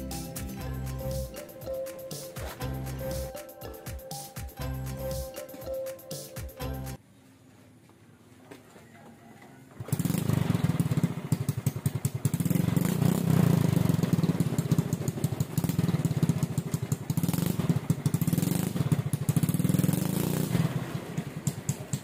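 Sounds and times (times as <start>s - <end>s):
small motorcycle engine revving: 9.8s - 22.0s.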